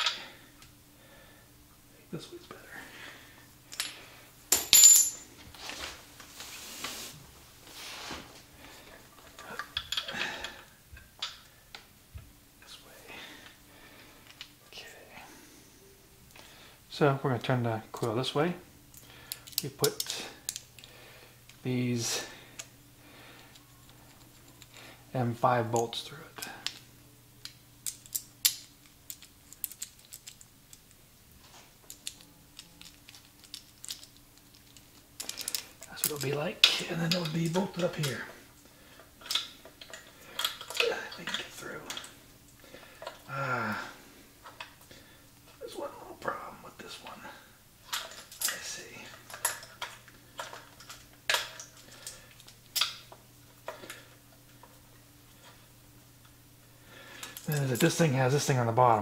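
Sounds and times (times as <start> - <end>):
faint steady hum: 0.0 - 59.0
small parts clicking and tapping: 14.2 - 14.6, 18.9 - 21.6, 25.8 - 31.0, 31.8 - 38.3, 39.0 - 43.3, 47.9 - 54.8, 57.1 - 58.0
small metal bolts clicking and tapping: 27.4 - 30.9, 31.9 - 38.1.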